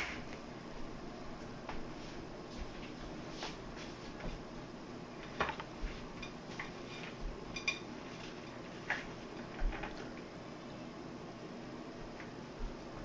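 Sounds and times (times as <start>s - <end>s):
faint room tone hiss: 0.0s - 13.0s.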